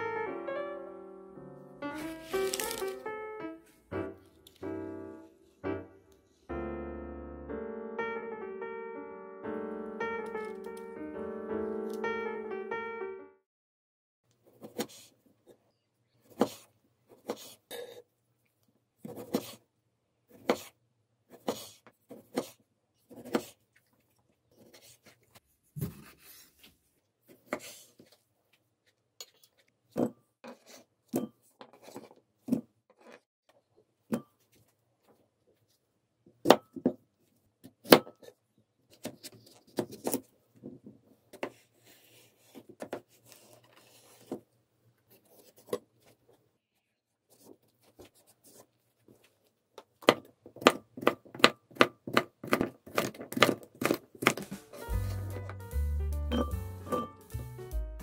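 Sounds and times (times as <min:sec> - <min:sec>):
knife slicing cucumber: 0:14.5 - 0:15.2, 0:16.3 - 0:17.6, 0:19.0 - 0:19.6, 0:20.3 - 0:23.6.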